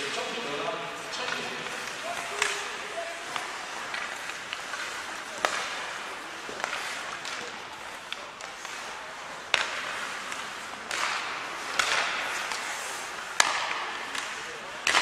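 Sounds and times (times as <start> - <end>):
skate blades scraping on ice: 0.0 - 15.0
sticks and puck clacking: 0.0 - 15.0.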